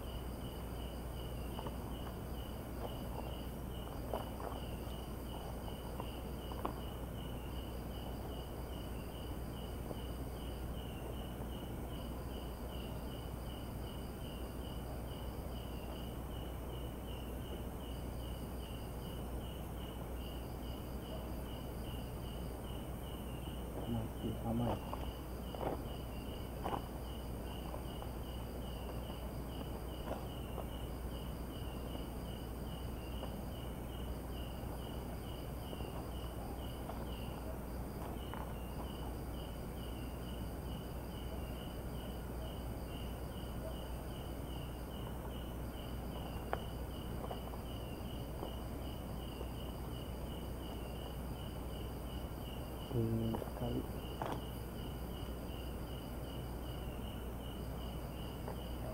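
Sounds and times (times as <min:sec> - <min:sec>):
crickets chirping: 0:00.0 - 0:58.9
high insect trill: 0:00.0 - 0:58.9.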